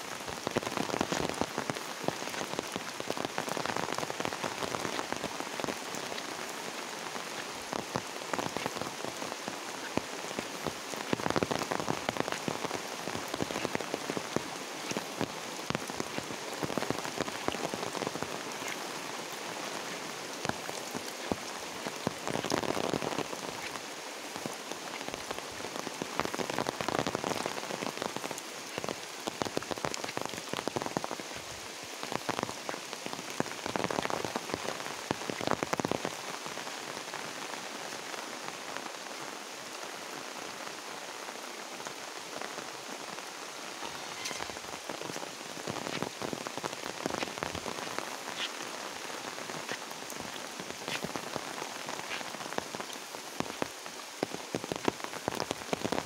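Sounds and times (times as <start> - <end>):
raindrops ticking close by: 0.0 - 56.0
steady rain: 0.0 - 56.0.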